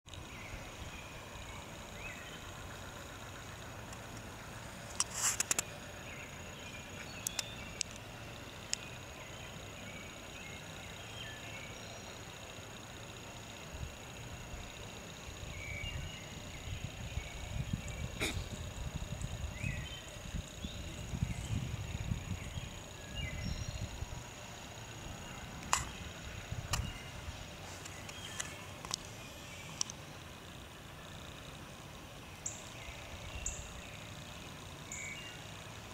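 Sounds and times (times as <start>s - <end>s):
high insect drone: 0.1s - 35.9s
low hiss: 0.1s - 35.9s
sharp clicks: 3.8s - 5.8s, 7.0s - 9.0s, 25.1s - 27.1s, 27.8s - 30.0s
faint bird chirps: 13.8s - 29.9s.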